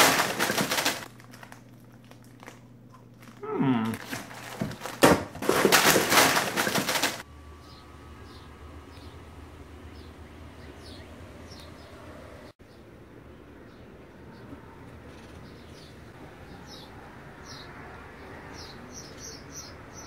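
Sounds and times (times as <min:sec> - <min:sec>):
plastic snack bags crinkling: 0:00.0 - 0:07.2
faint outdoor background: 0:07.2 - 0:20.0.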